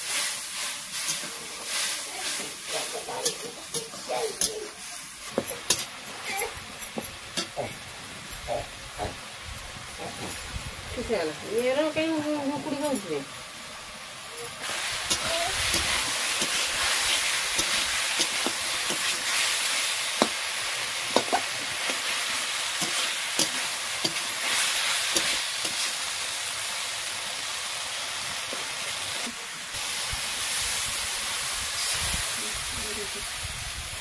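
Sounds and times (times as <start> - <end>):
metal spatula scraping a pan: 0.0 - 5.9
fish sizzling in oil: 0.0 - 34.0.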